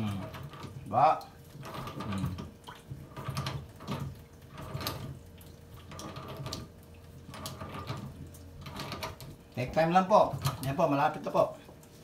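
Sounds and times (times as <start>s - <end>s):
metal creaking and clicking: 0.0s - 0.9s, 1.5s - 5.2s, 5.8s - 6.7s, 7.3s - 10.8s.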